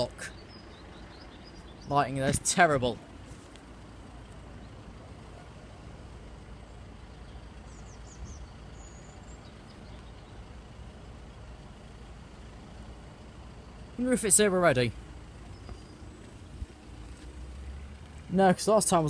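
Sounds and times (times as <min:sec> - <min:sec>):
road traffic rumble: 0:00.0 - 0:19.0
faint bird chirps: 0:00.2 - 0:02.2, 0:06.6 - 0:10.7, 0:15.4 - 0:16.7.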